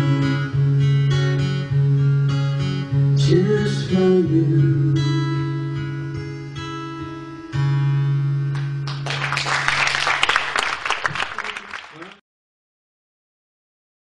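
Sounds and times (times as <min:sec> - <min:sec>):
guitar chord ringing: 0:00.0 - 0:09.0
audience applauding: 0:08.6 - 0:12.2.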